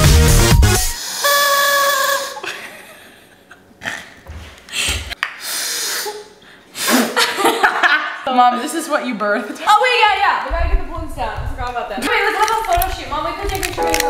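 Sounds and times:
breathy hiss: 4.7s - 7.1s
short breaths: 4.7s - 7.1s
girls laughing: 6.9s - 8.3s, 11.9s - 12.7s.

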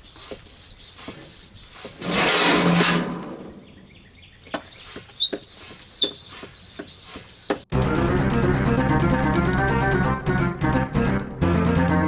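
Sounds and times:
faint pump strokes: 0.0s - 3.5s, 4.5s - 7.7s
sharp clicks: 7.5s - 10.1s.

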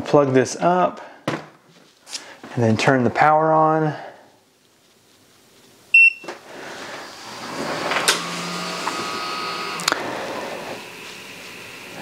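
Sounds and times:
cooling fan whirring: 5.8s - 12.0s
short electronic beep: 6.0s - 6.2s.

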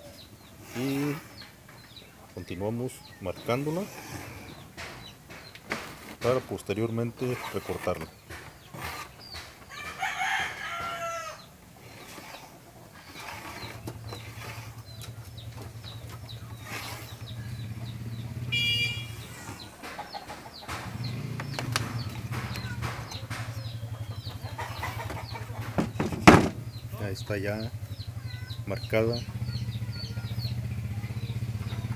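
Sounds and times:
birds calling: 0.0s - 31.9s
sharp knocks: 4.6s - 7.5s, 17.9s - 26.8s.

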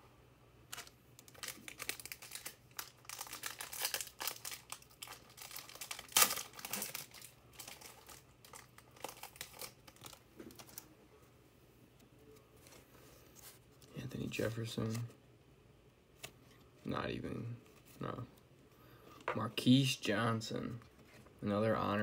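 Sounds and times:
wrapper tearing and crinkling: 0.7s - 10.8s.

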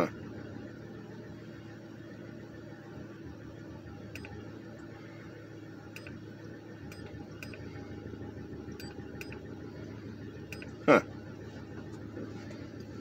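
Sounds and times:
steady low hum: 0.0s - 13.0s
button clicks: 4.2s - 4.4s, 6.0s - 6.2s, 6.9s - 7.7s, 8.8s - 9.4s, 10.5s - 10.8s.

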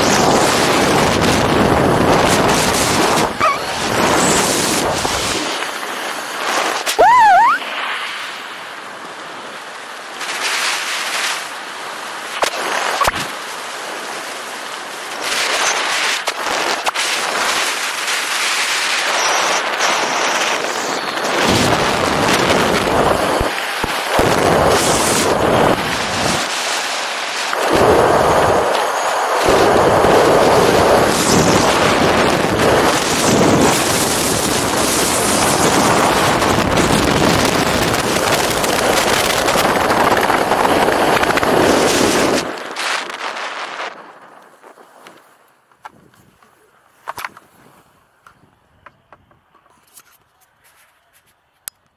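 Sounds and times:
wind buffeting microphone: 0.0s - 7.6s, 19.0s - 26.9s, 27.5s - 45.2s.

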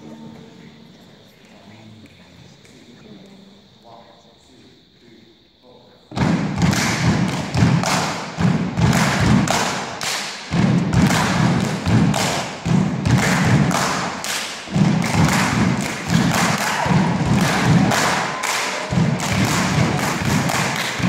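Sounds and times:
rhythmic thumping beat: 6.1s - 21.0s.

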